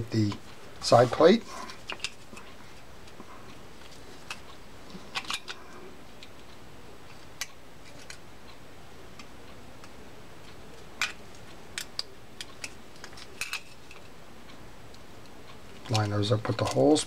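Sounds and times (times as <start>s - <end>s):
metal reel parts clicking: 15.8s - 17.0s.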